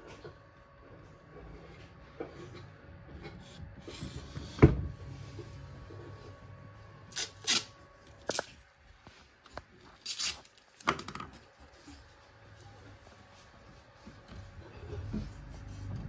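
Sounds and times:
paper and tape crinkling: 7.1 - 14.6.

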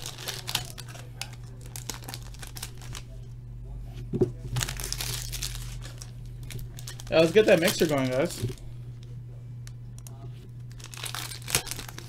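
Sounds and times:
foil wrapper crinkling: 0.0 - 3.2, 4.5 - 8.7, 10.0 - 12.0
low hum: 0.0 - 12.0.

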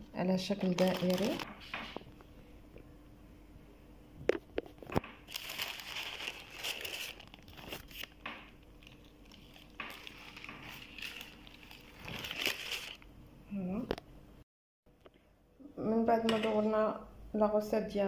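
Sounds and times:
paper and plastic film crinkling: 0.4 - 1.6, 5.2 - 13.0.

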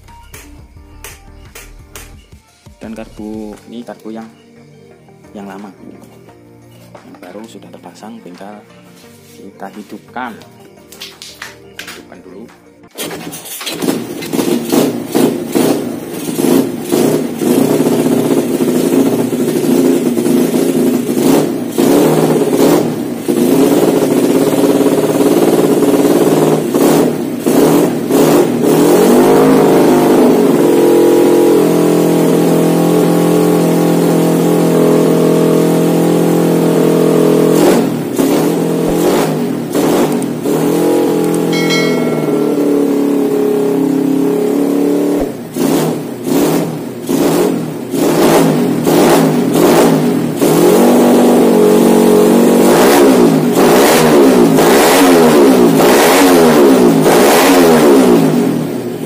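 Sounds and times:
motorcycle engine revving and idling: 13.6 - 59.0.

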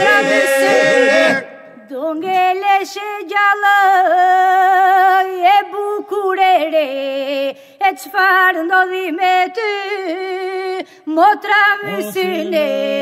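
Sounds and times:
held vocal drone: 0.0 - 1.8, 11.8 - 13.0
polyphonic a cappella singing: 0.0 - 13.0.

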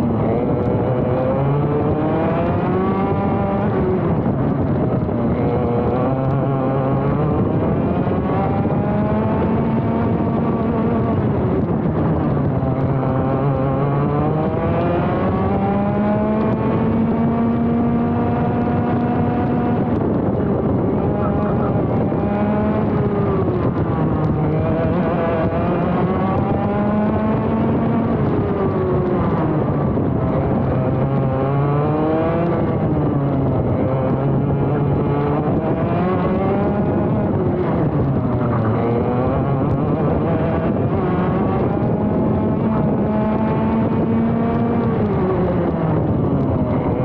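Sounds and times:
kart engine at full throttle: 0.0 - 47.0.

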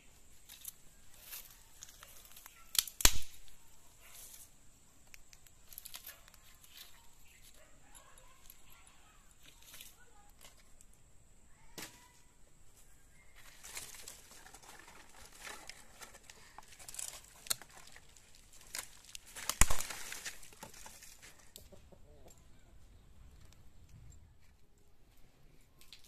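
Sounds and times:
dry branches cracking and rustling: 0.4 - 10.9, 13.4 - 21.6
loud sharp branch snap: 2.4 - 3.6, 19.4 - 20.3.

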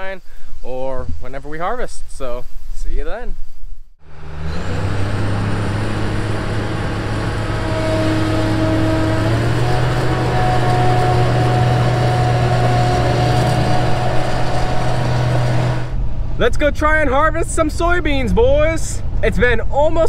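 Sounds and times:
pickup truck engine running: 4.0 - 16.2.

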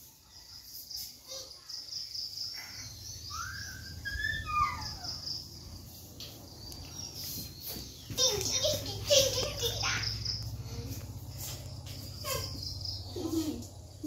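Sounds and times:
insects chirring: 0.0 - 14.0
bird whistling: 3.2 - 5.2.

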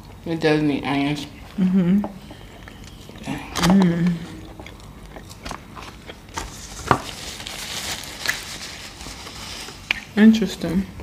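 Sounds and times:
chewing and biting food: 2.4 - 7.1.

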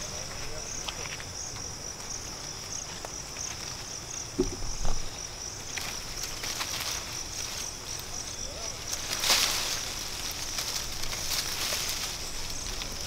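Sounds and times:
high-pitched insect chorus: 0.0 - 13.0
short dull thumps: 4.4 - 5.1.

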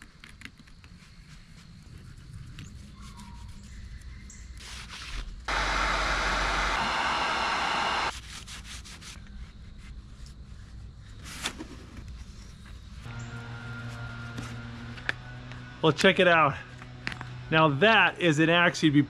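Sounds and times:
heat gun blowing: 5.5 - 8.1.

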